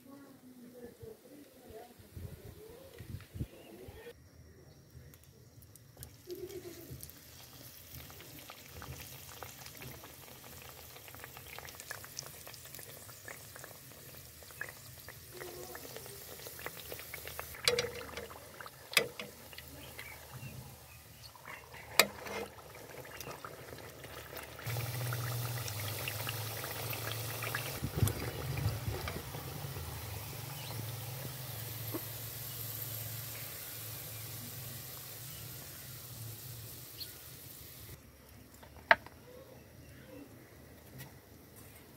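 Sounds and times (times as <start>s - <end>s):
hot oil sizzling: 5.6s - 38.0s
metal tongs clicking on pan: 17.6s - 18.3s.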